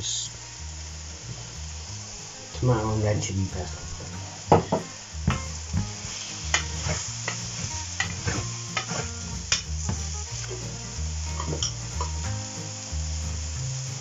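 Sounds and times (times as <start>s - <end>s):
mushrooms sizzling in a pan: 0.0s - 14.0s
wooden spoon scraping a pan: 3.6s - 12.2s.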